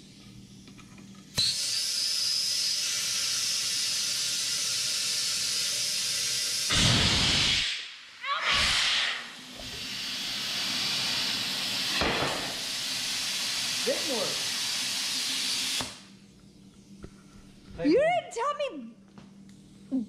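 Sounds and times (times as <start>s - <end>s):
compressed air hissing: 1.4s - 16.0s.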